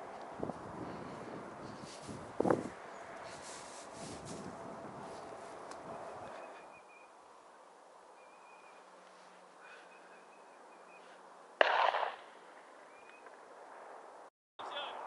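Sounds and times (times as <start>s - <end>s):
gunshot with echo: 11.6s - 12.3s.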